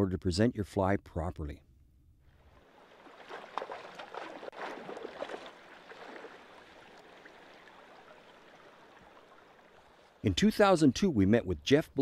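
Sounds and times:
flowing water rushing: 2.3s - 10.2s
creek water splashing: 2.3s - 10.9s.

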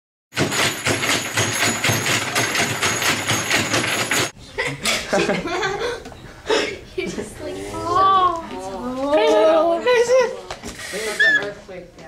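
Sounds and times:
shake table rattling and knocking: 0.4s - 4.3s
voices: 7.0s - 12.0s.

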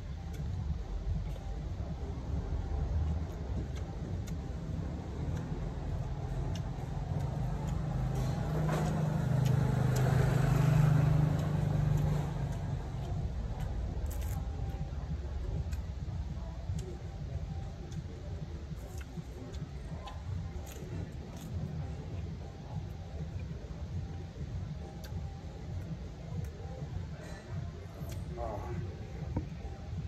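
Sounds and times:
background traffic rumble: 0.0s - 30.0s
vehicle engine passing by: 4.8s - 14.1s.

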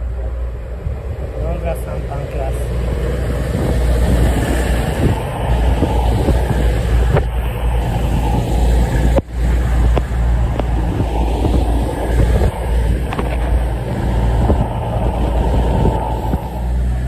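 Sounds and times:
diesel train low rumble: 0.0s - 17.0s.

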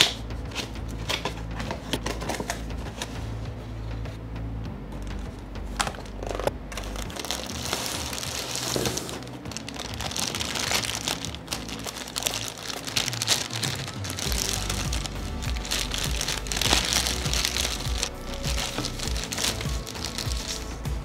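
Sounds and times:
faint music: 0.0s - 21.0s
plastic bags crinkling: 5.8s - 20.8s.

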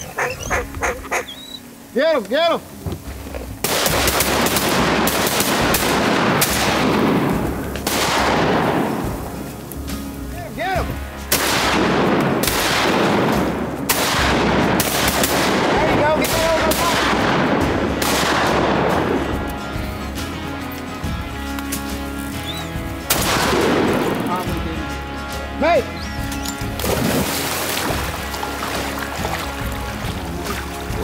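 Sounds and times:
shotgun blasts with echo: 3.6s - 9.4s, 11.3s - 19.4s, 23.1s - 24.4s.

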